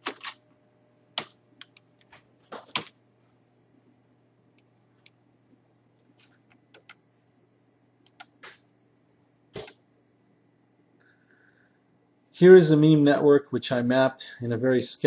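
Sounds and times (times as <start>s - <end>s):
low steady hum: 0.0s - 15.0s
faint clicks: 8.0s - 8.6s.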